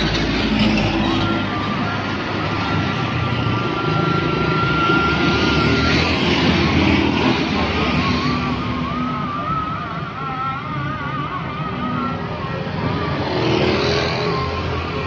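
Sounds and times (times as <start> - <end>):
truck passing: 0.0 - 10.2
motorcycles passing: 0.0 - 15.0.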